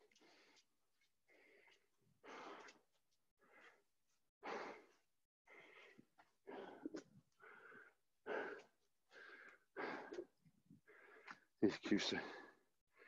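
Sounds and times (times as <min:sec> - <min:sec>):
man breathing hard: 0:03.4 - 0:11.5.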